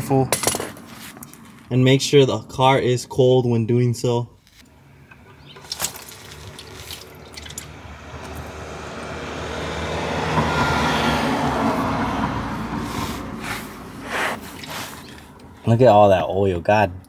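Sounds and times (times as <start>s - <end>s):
fluid pouring into a pan: 5.6s - 7.7s.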